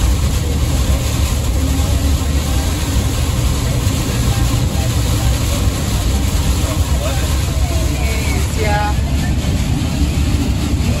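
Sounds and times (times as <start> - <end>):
rain hiss and tyre spray: 0.0 - 11.0
road and engine rumble: 0.0 - 11.0.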